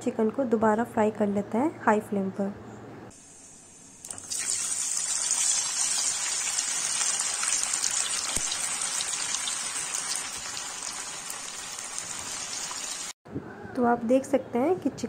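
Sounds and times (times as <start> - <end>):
chicken deep-frying in oil: 4.0 - 13.2.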